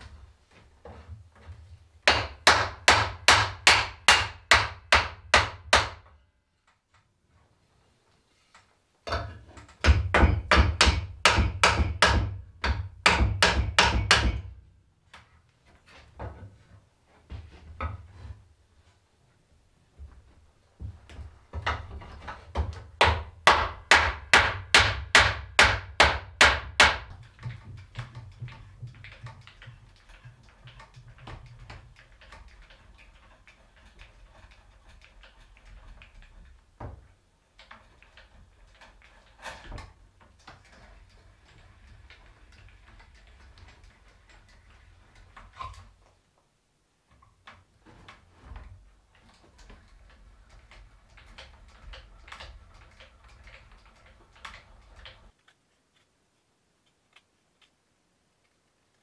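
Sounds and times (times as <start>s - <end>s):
hammer striking wood: 2.0s - 6.1s, 9.1s - 14.6s, 22.6s - 29.4s
hand brace boring into wood: 49.1s - 55.6s.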